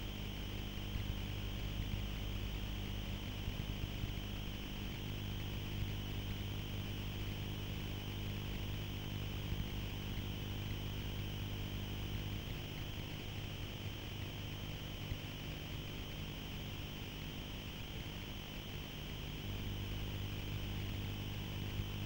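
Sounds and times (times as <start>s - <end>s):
low steady hum: 16.7s - 22.0s.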